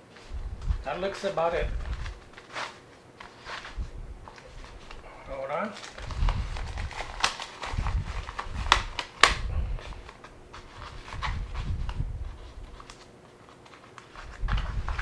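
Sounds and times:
fabric rustling: 0:00.0 - 0:09.0, 0:09.6 - 0:15.0
sharp plastic clicks: 0:08.6 - 0:09.5.

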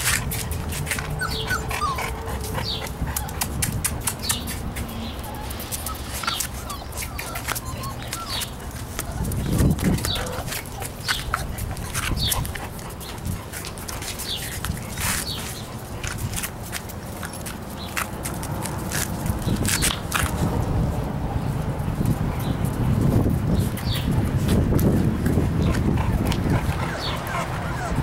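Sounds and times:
puppies whimpering: 0:00.0 - 0:16.0, 0:25.6 - 0:28.0.

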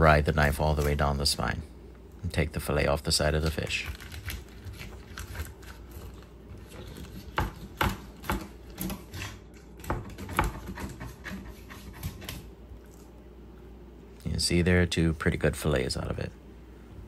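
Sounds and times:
knife cutting fish on wooden board: 0:04.2 - 0:12.4.

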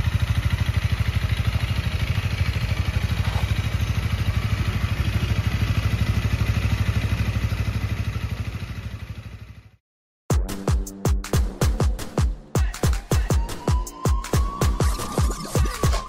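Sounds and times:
motorcycle engine idling: 0:00.0 - 0:09.8.

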